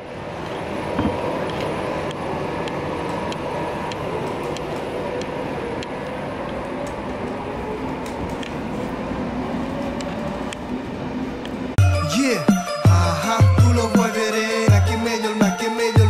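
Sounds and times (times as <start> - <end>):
train rumble and hum: 0.0 - 11.8.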